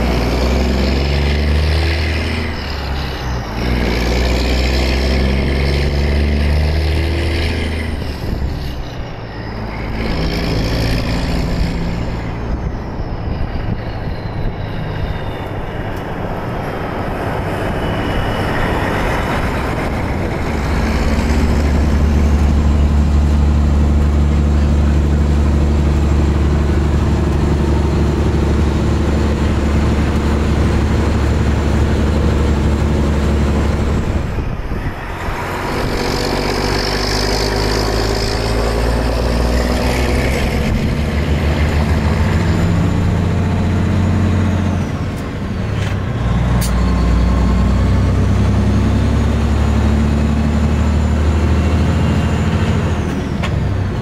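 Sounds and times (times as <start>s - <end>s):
diesel truck engine drone: 0.0s - 54.0s
road and wind noise: 0.0s - 54.0s.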